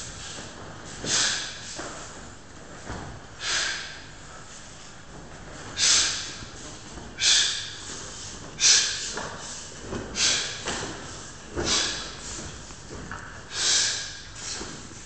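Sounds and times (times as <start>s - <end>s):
person exhaling sharply: 1.0s - 1.8s, 3.4s - 4.1s, 5.8s - 6.4s, 7.2s - 9.6s, 10.2s - 10.7s, 11.6s - 12.4s, 13.5s - 14.7s.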